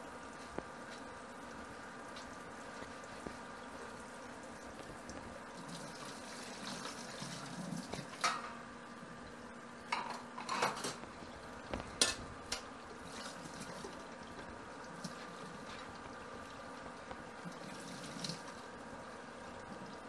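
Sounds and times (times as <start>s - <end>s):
water running from faucet: 2.0s - 8.5s, 11.2s - 20.0s.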